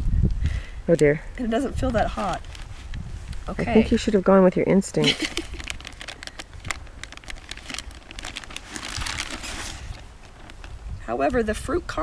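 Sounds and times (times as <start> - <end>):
food pouch crinkling: 5.0 - 11.0.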